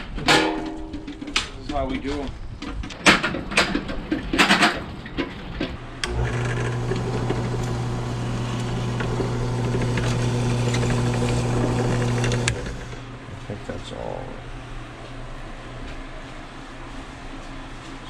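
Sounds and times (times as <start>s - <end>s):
drill bit cutting steel plate: 6.0s - 13.1s
drill press motor humming: 6.0s - 13.2s.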